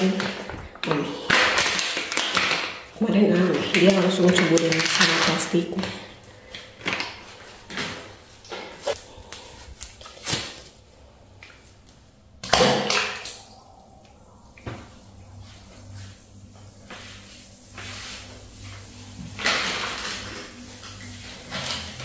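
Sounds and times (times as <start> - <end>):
low steady hum: 0.0 - 22.0
object splashing into water: 12.4 - 13.7.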